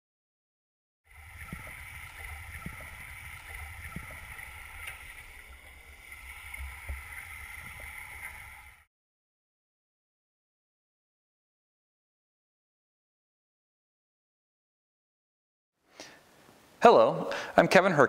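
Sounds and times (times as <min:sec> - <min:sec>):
underwater rumble of moving water: 0:01.1 - 0:08.8.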